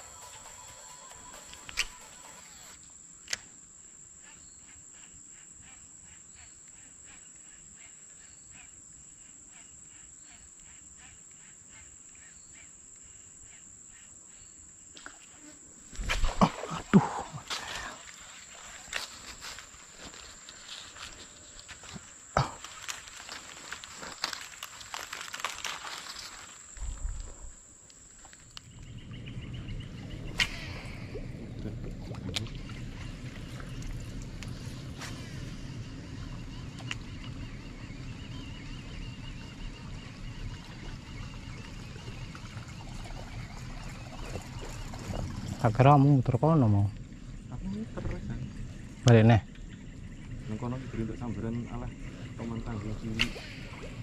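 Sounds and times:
insects droning: 0.0s - 54.0s
low steady rumble: 28.8s - 54.0s.

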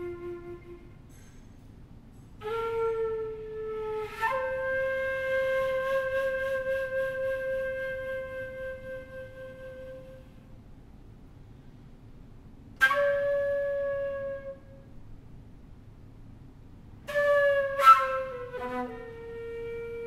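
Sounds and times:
flute-like wind instrument notes: 0.0s - 1.4s, 2.4s - 10.4s, 12.8s - 14.9s, 17.1s - 20.0s.

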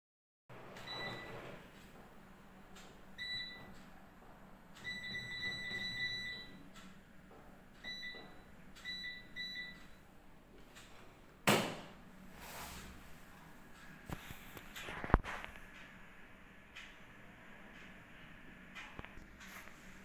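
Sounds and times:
loud sharp knock: 11.4s - 12.0s.

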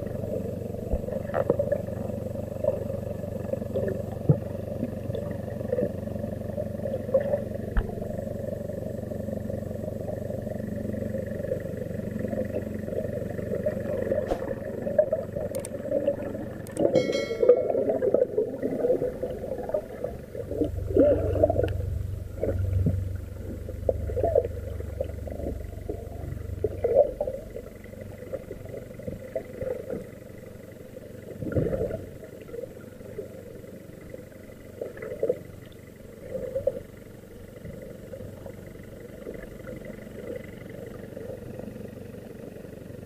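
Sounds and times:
low hum: 0.0s - 43.0s
water surging underwater: 12.5s - 30.0s.

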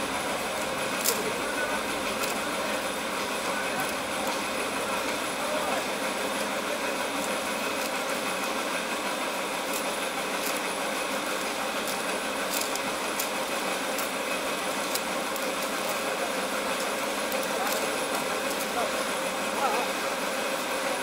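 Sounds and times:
machine-like drone: 0.0s - 19.9s.

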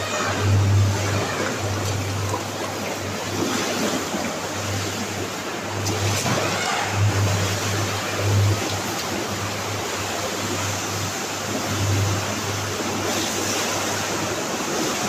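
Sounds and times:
low hum: 0.0s - 15.0s
water sloshing against tank wall: 0.0s - 15.0s.

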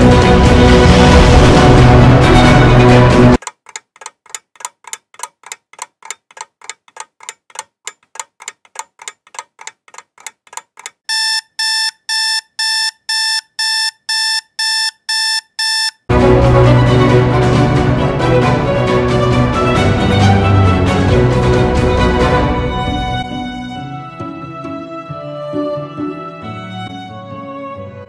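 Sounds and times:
rapid ticking: 3.4s - 11.6s
digital alarm clock beeping: 11.1s - 16.1s.

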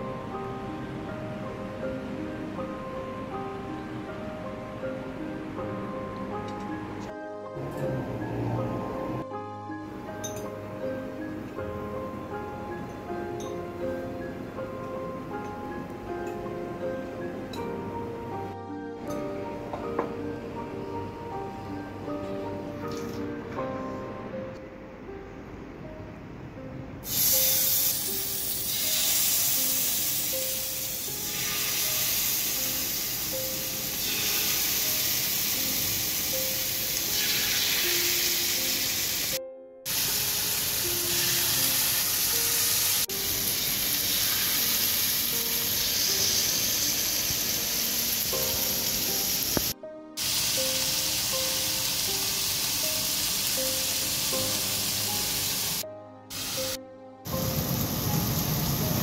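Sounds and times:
background music: 0.0s - 59.0s
meat sizzling in hot oil: 27.0s - 55.8s, 57.4s - 59.0s.

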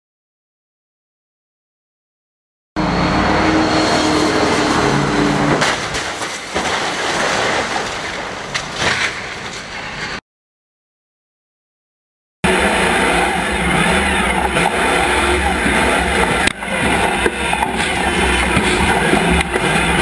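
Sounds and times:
metal scraping: 2.8s - 10.2s
car crash impacts: 5.4s - 9.7s
car engine revving hard: 12.4s - 20.0s.

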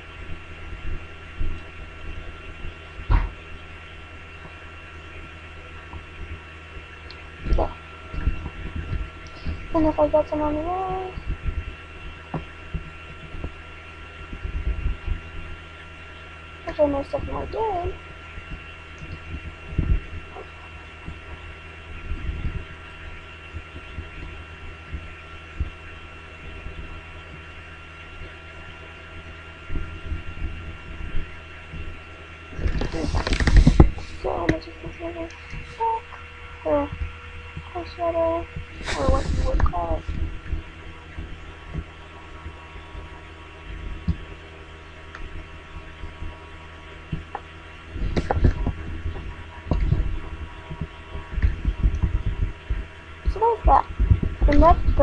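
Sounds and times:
soft low thumps: 0.0s - 3.7s, 5.9s - 25.8s, 26.4s - 44.4s, 47.0s - 55.0s
electrical hum: 0.0s - 55.0s
high-pitched whine: 0.0s - 55.0s.

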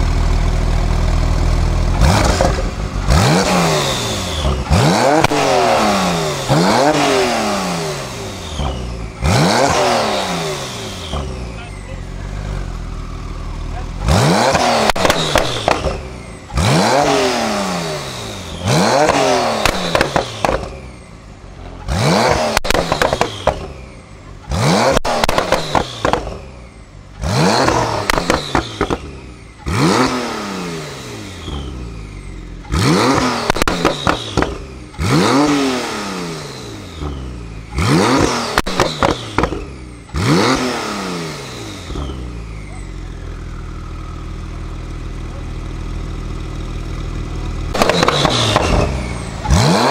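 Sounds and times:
car engine idling: 0.0s - 29.8s, 41.4s - 49.9s
car engine revving: 0.0s - 49.9s
exhaust pops and crackles: 1.9s - 2.9s, 13.7s - 16.2s, 19.0s - 20.8s, 21.6s - 23.7s, 24.4s - 26.4s, 27.6s - 29.1s, 32.6s - 35.0s, 37.7s - 39.7s, 43.8s - 49.9s.

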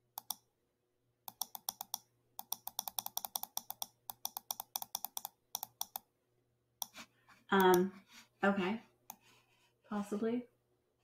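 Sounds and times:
mouse scroll wheel ticking: 0.2s - 0.4s, 1.3s - 6.0s, 7.6s - 7.9s.

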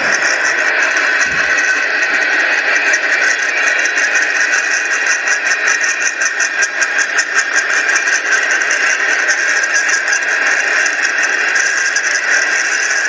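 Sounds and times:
freight train rolling by: 0.0s - 9.0s.

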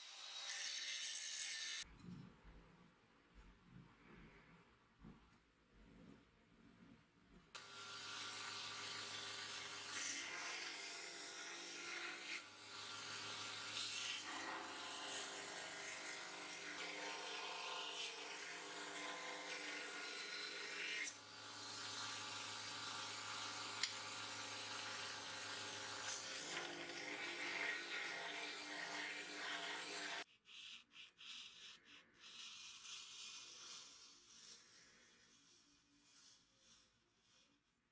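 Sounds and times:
belt grinder grinding blade: 7.6s - 30.2s.

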